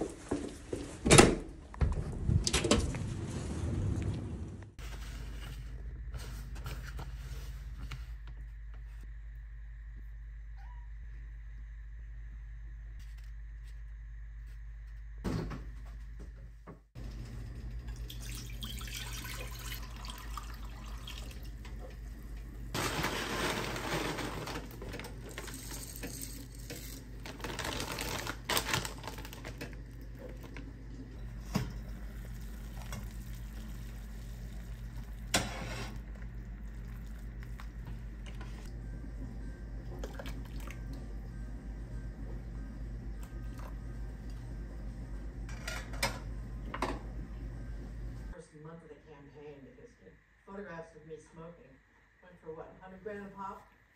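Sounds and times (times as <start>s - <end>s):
low hum: 1.7s - 18.7s, 21.1s - 53.0s
tap water running into pot: 17.9s - 21.6s.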